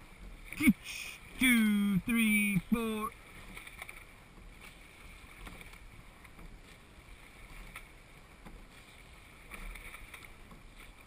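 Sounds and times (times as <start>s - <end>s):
oars and rigging clicking: 0.0s - 11.0s
water rushing along hull: 0.0s - 11.0s
oar blades splashing: 2.8s - 11.0s.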